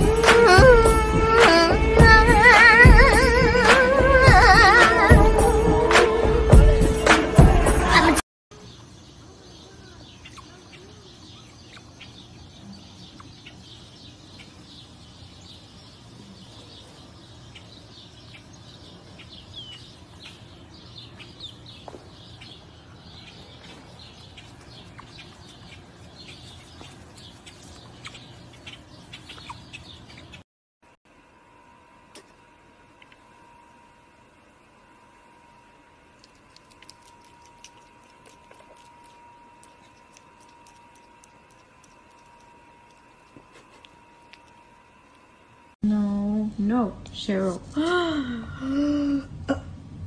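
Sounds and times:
faint low hum: 31.1s - 50.0s.

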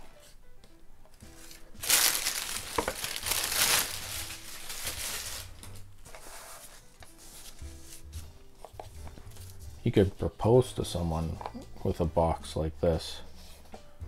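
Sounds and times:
paper rustling and crumpling: 1.3s - 9.6s.

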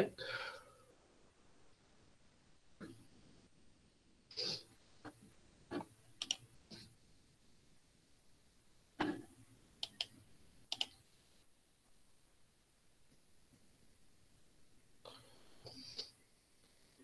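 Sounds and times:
computer mouse clicks: 5.1s - 6.4s, 9.0s - 11.0s.

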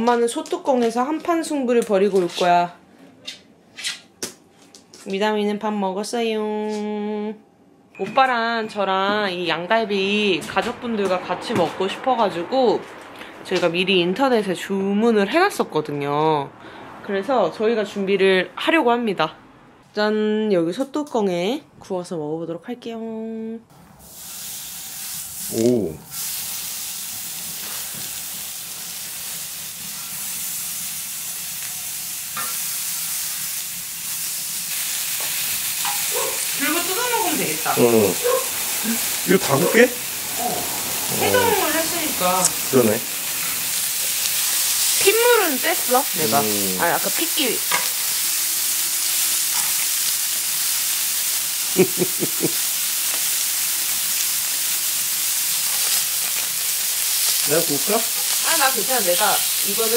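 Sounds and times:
meat sizzling on a griddle: 24.0s - 59.9s
person's voice: 36.6s - 38.2s, 38.9s - 43.1s, 45.0s - 47.6s.

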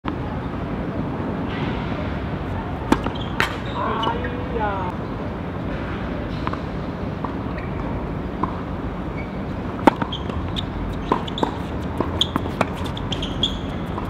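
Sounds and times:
steady background noise: 0.0s - 14.0s
tennis balls struck and bouncing: 2.7s - 4.3s, 9.4s - 14.0s.

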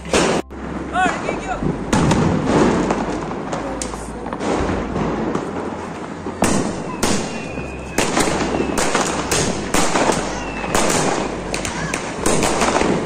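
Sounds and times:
firework shots cracking: 0.0s - 13.0s
faint firework whistles: 6.2s - 12.6s.

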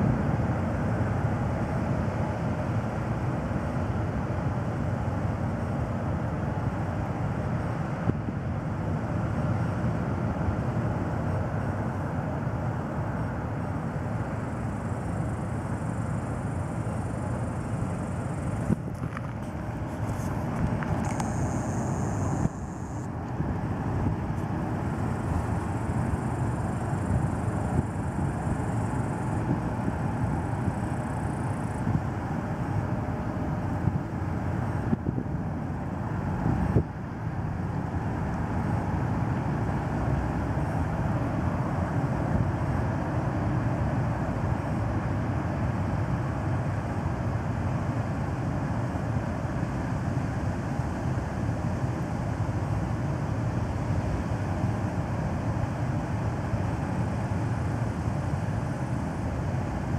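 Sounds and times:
ship diesel engine rumble: 8.6s - 47.6s.

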